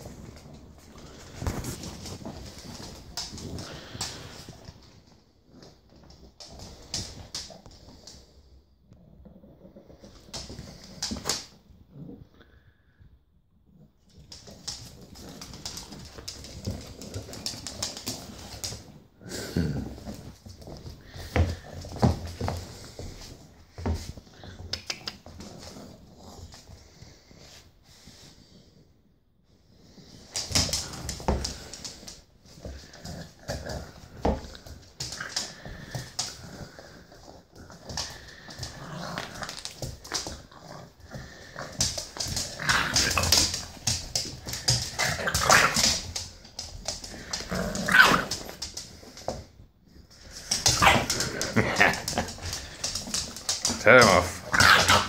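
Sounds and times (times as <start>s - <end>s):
puppy scuffling on laminate floor: 0.0s - 8.6s, 9.2s - 11.8s, 14.0s - 28.6s, 29.7s - 55.0s
dogs growling and barking: 30.3s - 49.2s, 50.3s - 55.0s.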